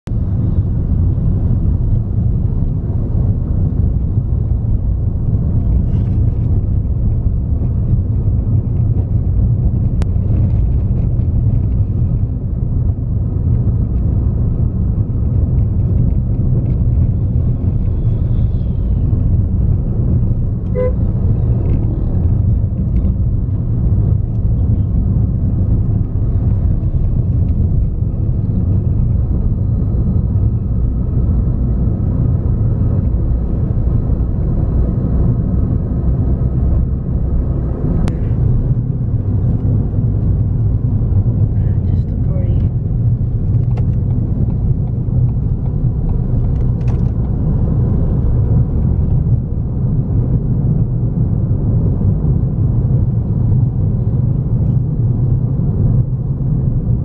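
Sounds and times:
car road and engine rumble: 0.0 - 57.0
car horn beep: 20.7 - 21.2.

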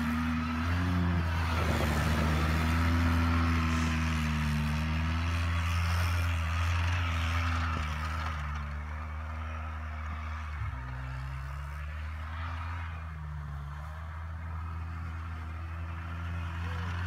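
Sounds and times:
quad bike engine running: 0.0 - 17.0.

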